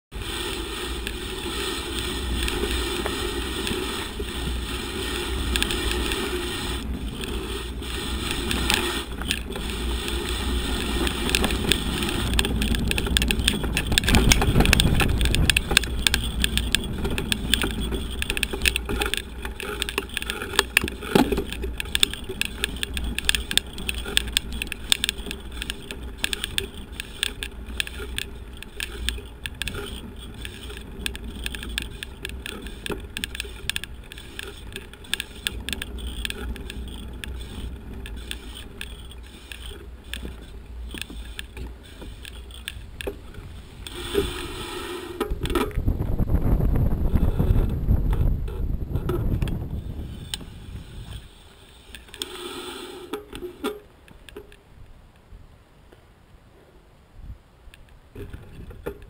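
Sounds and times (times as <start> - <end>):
wind rumble on microphone: 0.2 - 39.2, 42.6 - 51.4, 57.1 - 57.5, 58.1 - 59.0
camera knocks and rattles: 10.8 - 44.4, 47.0 - 51.2.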